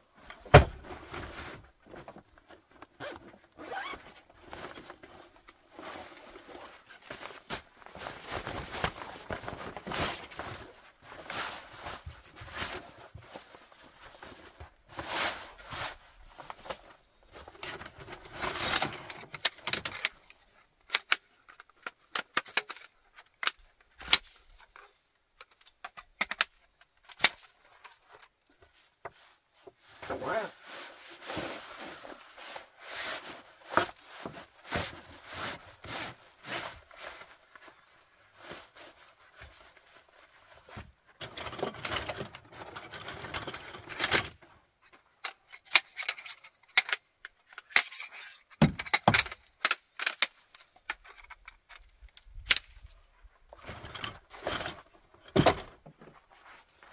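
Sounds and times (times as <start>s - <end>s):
bag thumping on plywood: 0.5s - 1.0s
nylon fabric rustling: 2.6s - 16.0s.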